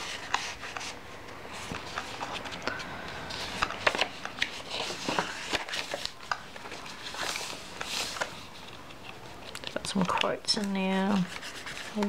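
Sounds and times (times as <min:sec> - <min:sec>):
paper pages rustling: 0:00.0 - 0:12.0.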